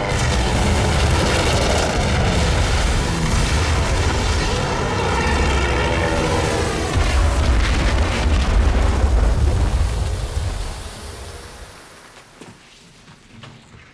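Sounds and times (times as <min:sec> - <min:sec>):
propeller warplanes droning: 0:00.0 - 0:11.9
deep continuous rumble: 0:00.0 - 0:12.2.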